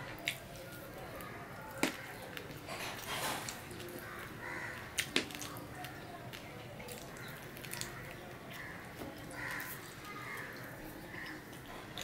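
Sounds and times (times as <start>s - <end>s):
biting and chewing: 0.0s - 12.0s.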